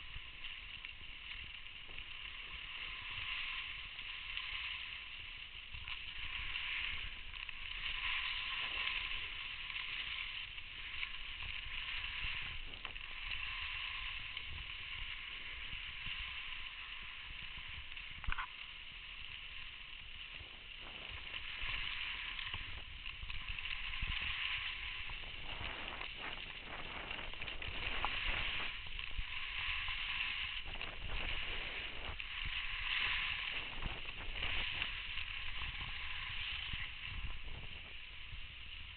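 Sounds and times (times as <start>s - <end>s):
skis scraping over packed snow: 0.0s - 38.9s
wind rumbling on microphone: 0.0s - 38.9s.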